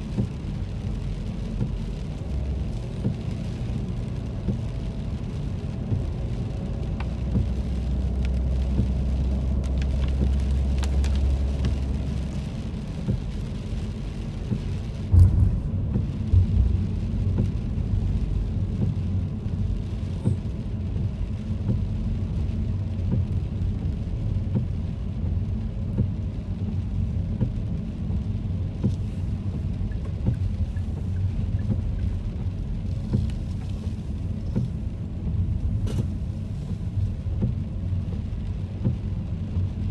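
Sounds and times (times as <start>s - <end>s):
engine and tyres rumbling: 0.0s - 39.9s
low hum: 15.0s - 18.2s
brief thump: 35.8s - 36.2s.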